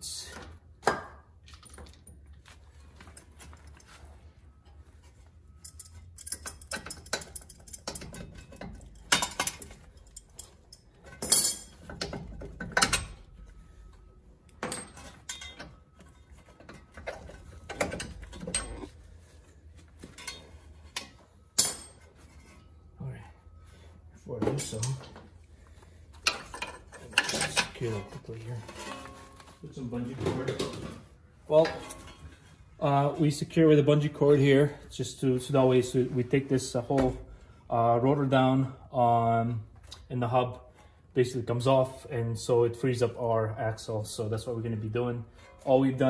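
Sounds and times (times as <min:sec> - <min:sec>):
metal tools clinking: 0:05.1 - 0:13.4, 0:14.4 - 0:19.0, 0:20.0 - 0:22.8, 0:24.4 - 0:25.2, 0:26.2 - 0:30.9.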